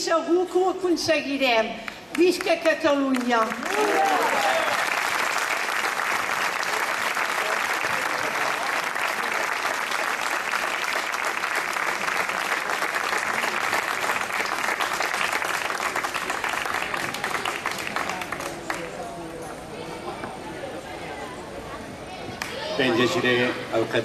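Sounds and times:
crowd applauding: 2.0 - 19.3.

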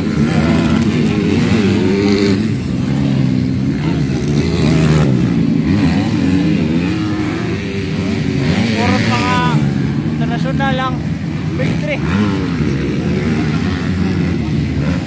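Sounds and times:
motocross bike engines revving: 0.0 - 15.0.

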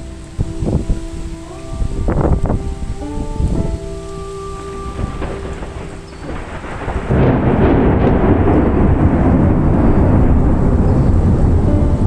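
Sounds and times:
deep rumble of thunder: 0.0 - 12.0
rain hiss: 0.0 - 12.0.

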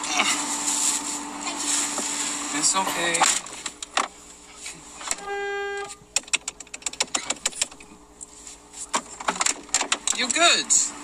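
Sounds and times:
short horn-like beep: 5.1 - 6.0.

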